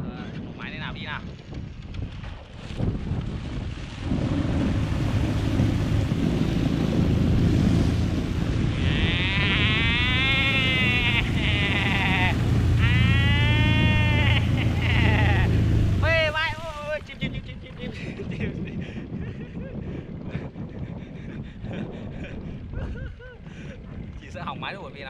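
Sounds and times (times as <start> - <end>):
wind noise: 0.0 - 25.0
water noise: 0.3 - 25.0
scooter engine running: 9.4 - 16.0.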